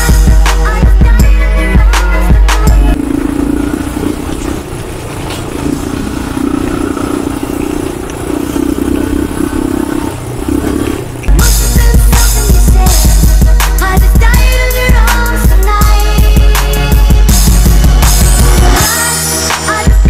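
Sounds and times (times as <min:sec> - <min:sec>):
loud hip-hop music: 0:00.0 - 0:03.0, 0:11.3 - 0:20.0
quad bike engine running: 0:00.0 - 0:20.0.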